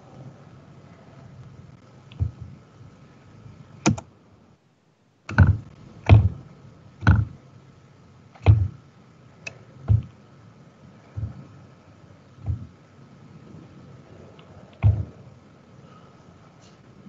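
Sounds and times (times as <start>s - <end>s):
faint high-pitched hum: 0.0s - 17.0s
short dull knocks: 2.1s - 2.6s, 5.3s - 6.4s, 7.0s - 7.4s, 8.4s - 8.8s, 9.8s - 10.2s, 11.1s - 11.5s, 12.4s - 12.8s, 14.8s - 15.2s.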